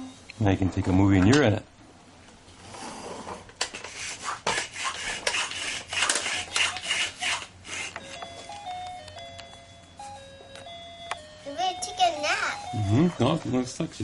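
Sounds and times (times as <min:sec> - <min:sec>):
toy electronic beeping tune: 0:08.0 - 0:13.2.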